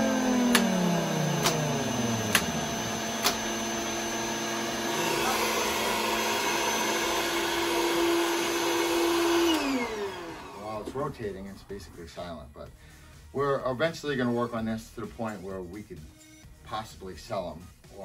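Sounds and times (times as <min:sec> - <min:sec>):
sharp clicks: 0:03.2 - 0:03.5.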